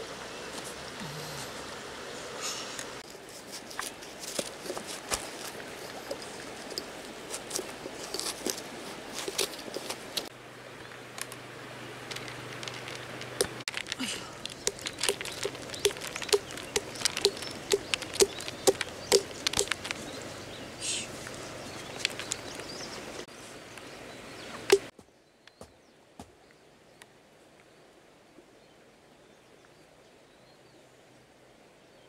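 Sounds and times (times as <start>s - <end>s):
seeds clicking: 12.1s - 20.1s, 21.8s - 22.7s.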